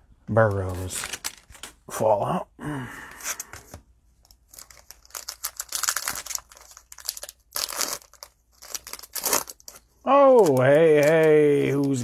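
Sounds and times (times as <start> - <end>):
cellophane wrapper crinkling and tearing: 0.7 - 1.8, 4.2 - 12.0.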